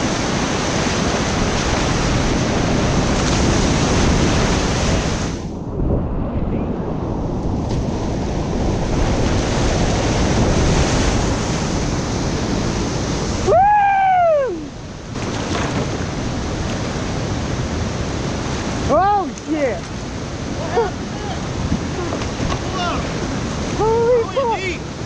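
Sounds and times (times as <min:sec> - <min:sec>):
wind buffeting microphone: 0:00.0 - 0:25.0
whitewater rapids rushing: 0:09.2 - 0:25.0
person whooping: 0:13.4 - 0:14.7.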